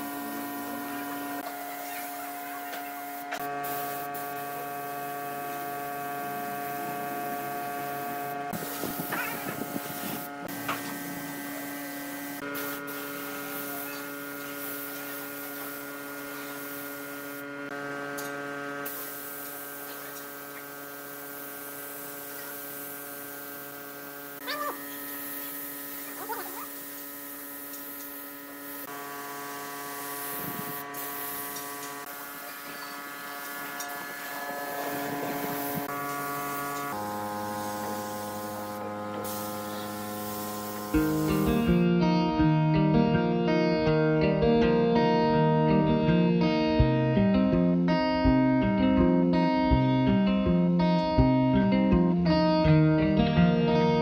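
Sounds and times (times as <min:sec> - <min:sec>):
spray gun hissing: 0:00.0 - 0:17.5, 0:18.8 - 0:41.7
steady layered hum: 0:00.0 - 0:26.8, 0:27.8 - 0:43.4.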